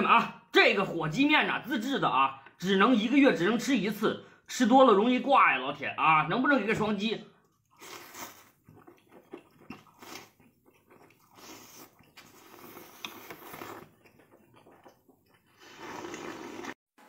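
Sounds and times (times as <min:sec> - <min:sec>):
chewing: 0:07.5 - 0:16.7
slurping noodles: 0:07.7 - 0:16.8.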